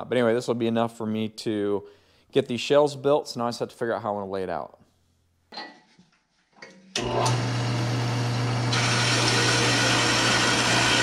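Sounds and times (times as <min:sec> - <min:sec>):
band saw cutting steel: 0:07.0 - 0:11.0.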